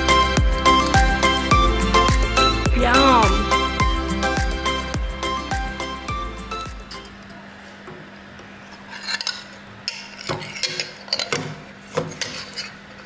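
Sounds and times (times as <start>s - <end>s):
cutlery scraping a ceramic plate: 8.7s - 13.0s.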